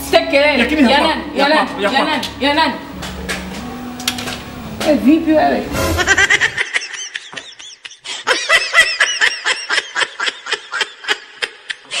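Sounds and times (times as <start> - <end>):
high-pitched laughter: 5.8 - 12.0.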